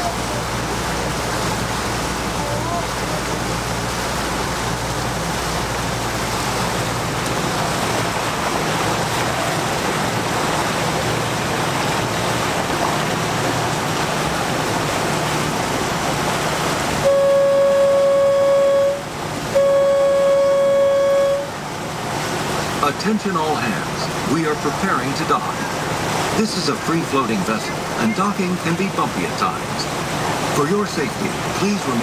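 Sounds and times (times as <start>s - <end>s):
boat engine hum: 0.0s - 32.0s
water rushing: 0.0s - 32.0s
wind: 0.0s - 32.0s
boat horn blast: 15.6s - 22.5s.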